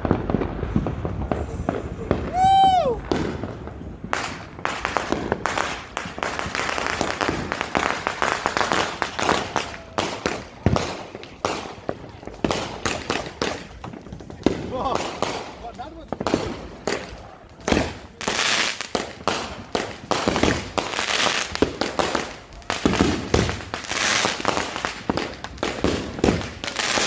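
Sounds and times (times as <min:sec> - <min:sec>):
fireworks crackling and banging: 0:00.0 - 0:27.0
firework whistle: 0:00.8 - 0:03.4.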